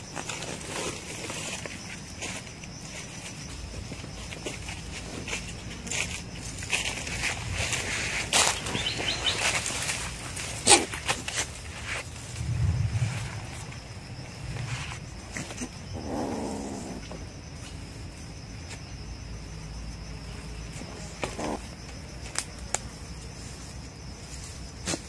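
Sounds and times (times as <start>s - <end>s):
twigs and leaves snapping underfoot: 4.2s - 12.6s, 22.2s - 23.0s.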